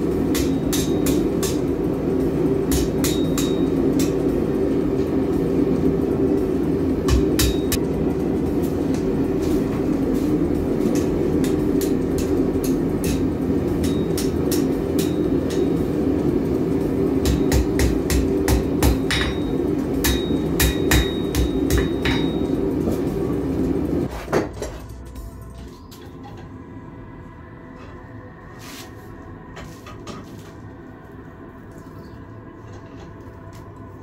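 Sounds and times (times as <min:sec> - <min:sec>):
steady hum: 0:00.0 - 0:34.0
hammer striking metal on anvil: 0:00.2 - 0:01.8, 0:02.7 - 0:04.3, 0:07.0 - 0:07.8, 0:10.9 - 0:15.8, 0:17.2 - 0:22.7.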